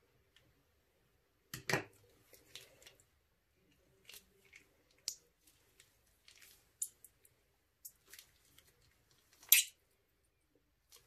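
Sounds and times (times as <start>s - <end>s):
slime squishing: 2.1s - 9.9s.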